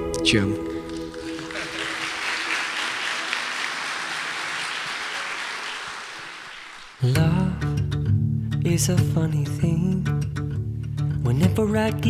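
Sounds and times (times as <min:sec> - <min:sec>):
crowd applauding: 0:00.7 - 0:07.2.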